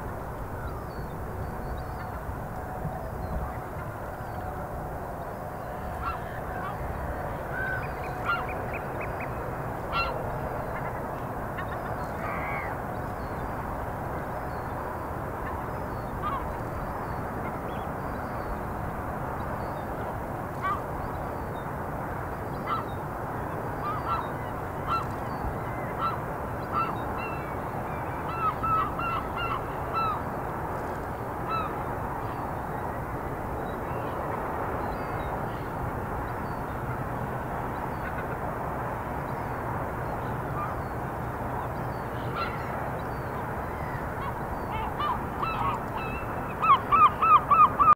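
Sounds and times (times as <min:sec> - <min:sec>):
birds calling: 0:07.4 - 0:13.5, 0:39.3 - 0:47.9.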